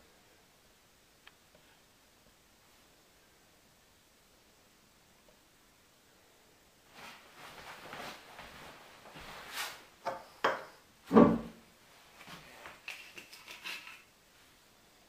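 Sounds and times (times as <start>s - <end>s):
heavy thump: 11.1s - 11.6s
bottle and can rustling: 12.4s - 14.1s.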